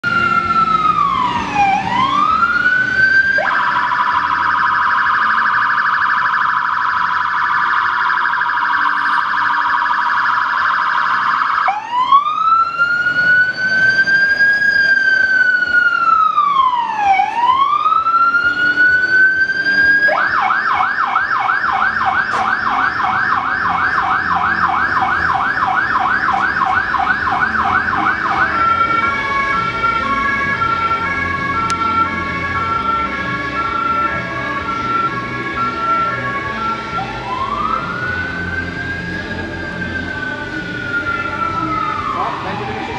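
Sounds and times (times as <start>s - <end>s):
fire engine siren: 0.0s - 42.9s.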